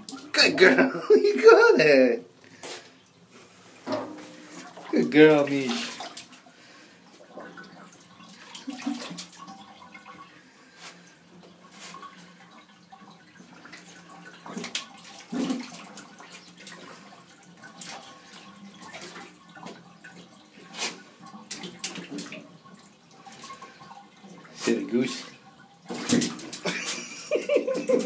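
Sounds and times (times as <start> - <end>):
dog splashing in water: 25.9 - 27.1.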